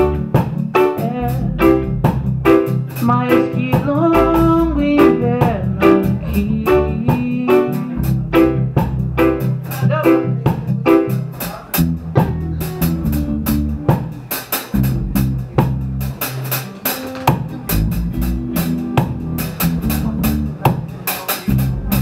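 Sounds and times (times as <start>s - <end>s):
drum kit beat: 0.0s - 22.0s
electric guitar: 0.0s - 22.0s
keyboard: 0.0s - 22.0s
low bass notes: 0.0s - 22.0s.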